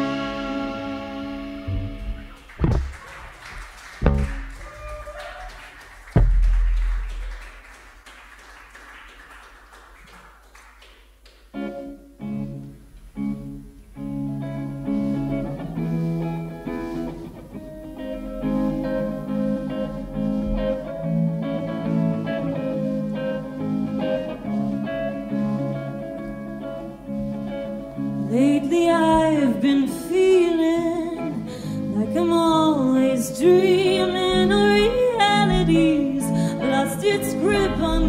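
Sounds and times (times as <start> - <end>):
electric guitar chords: 0.0 - 2.9, 4.0 - 4.5, 11.6 - 38.0
rock band playing: 0.0 - 2.9, 4.0 - 4.6, 14.0 - 28.4
loud low band hit ringing: 1.5 - 2.8.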